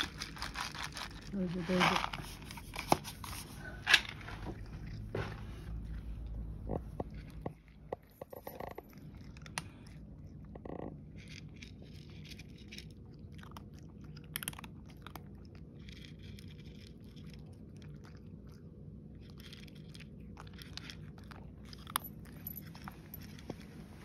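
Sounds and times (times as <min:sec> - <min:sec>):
cat crunching dry kibble: 0:00.0 - 0:24.0
low steady hum: 0:00.0 - 0:24.0.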